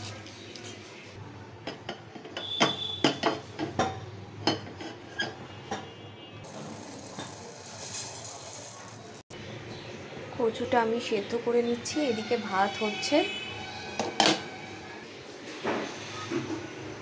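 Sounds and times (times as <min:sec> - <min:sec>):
metal cookware clinking: 0:01.6 - 0:09.2
lentils poured into pot: 0:06.4 - 0:09.2.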